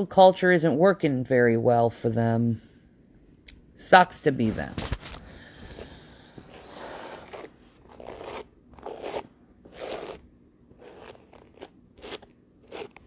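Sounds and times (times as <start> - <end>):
hairbrush through long hair: 6.5 - 10.2, 10.8 - 13.0.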